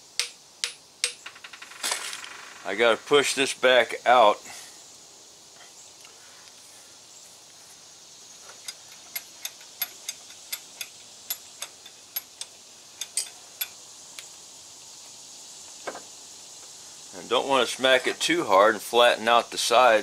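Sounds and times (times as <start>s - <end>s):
hammer tapping on steel: 0.2s - 1.2s.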